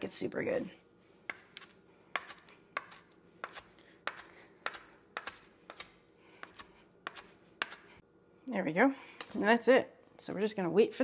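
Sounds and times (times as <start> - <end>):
knife chopping on wooden board: 1.3 - 7.9.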